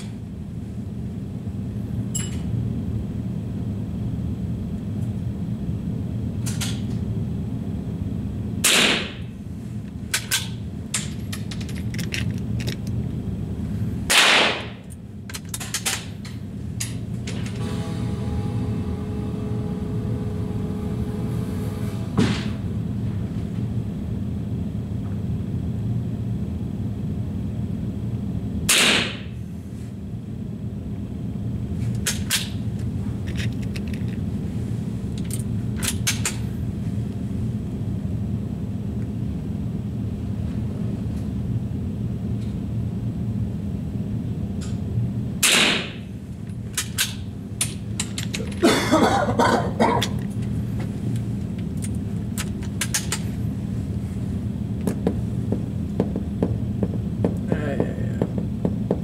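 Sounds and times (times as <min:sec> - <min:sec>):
steady low hum: 0:00.0 - 0:59.0
rattling handling noise: 0:10.2 - 0:13.0, 0:33.2 - 0:34.2, 0:46.4 - 0:48.7
rifle shot: 0:14.1 - 0:14.6.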